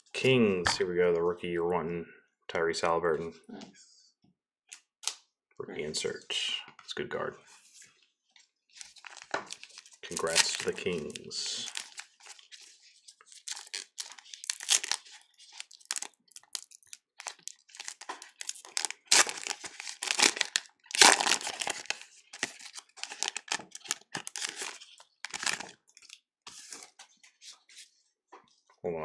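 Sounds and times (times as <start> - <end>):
plastic bag crinkling: 8.8 - 12.4, 13.3 - 26.2
foil wrapper crinkling and tearing: 8.8 - 12.6, 13.3 - 26.2.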